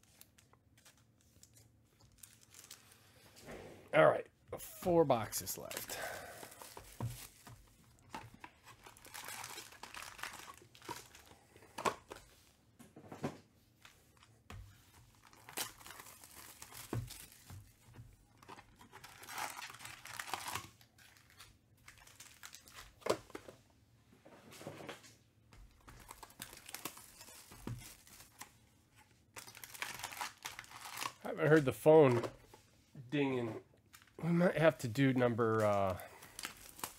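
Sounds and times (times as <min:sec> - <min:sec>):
wrappers tearing and crinkling: 0:00.0 - 0:03.1, 0:05.4 - 0:07.5, 0:08.2 - 0:12.2, 0:15.1 - 0:17.7, 0:18.4 - 0:23.0, 0:25.8 - 0:28.5, 0:29.3 - 0:31.6, 0:34.9 - 0:36.9.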